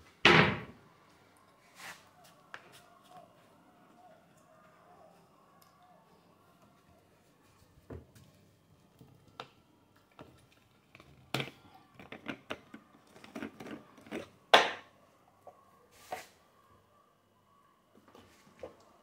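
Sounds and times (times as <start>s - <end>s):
household things knocking and clattering: 10.9s - 14.8s.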